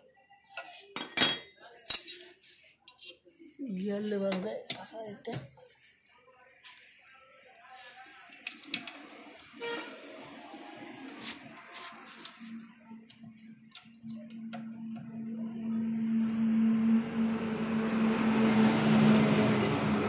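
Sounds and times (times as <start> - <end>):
rumble of vehicle noise: 9.5 - 20.0
steady low hum: 11.5 - 20.0.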